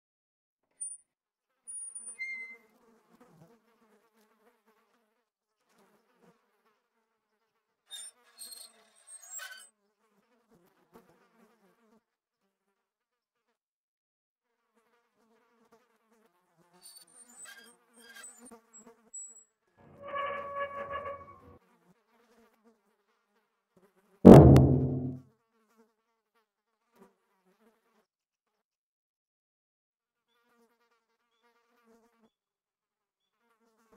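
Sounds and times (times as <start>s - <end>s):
fly buzzing: 19.8s - 21.5s
loud ringing impact: 24.3s - 25.2s.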